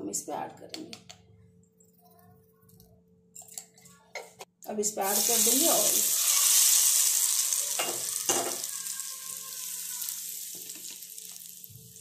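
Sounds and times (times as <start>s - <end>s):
hot oil sizzling: 5.0s - 12.0s.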